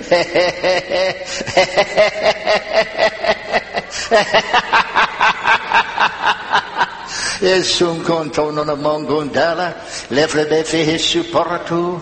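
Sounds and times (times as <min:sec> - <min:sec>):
man speaking in tongues: 0:07.4 - 0:12.0.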